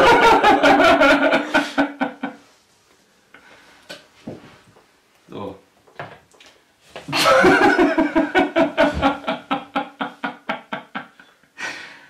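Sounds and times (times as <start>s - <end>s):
person laughing: 7.1s - 11.2s.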